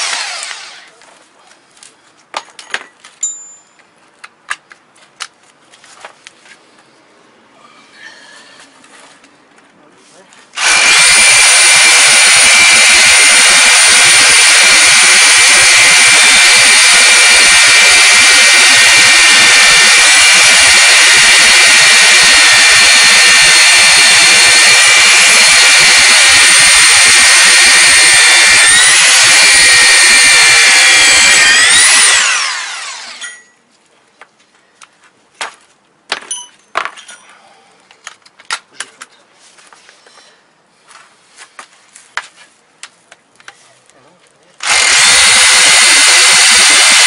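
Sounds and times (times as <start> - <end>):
rotary hammers drilling into concrete: 0.0 - 1.0, 10.6 - 33.6, 44.6 - 47.0.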